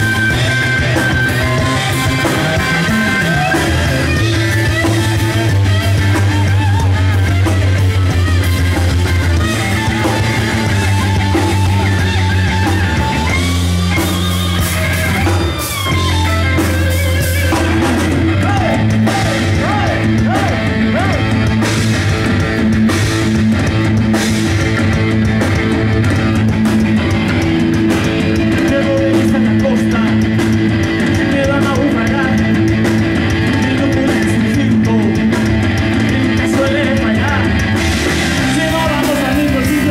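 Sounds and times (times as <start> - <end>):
distorted electric guitar: 0.0 - 39.9
drum kit: 0.0 - 39.9
electric bass: 0.0 - 39.9.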